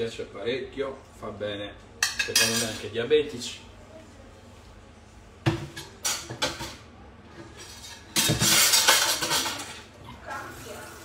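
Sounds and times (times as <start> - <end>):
utensils and cookware clattering: 2.0 - 2.9, 5.5 - 10.9.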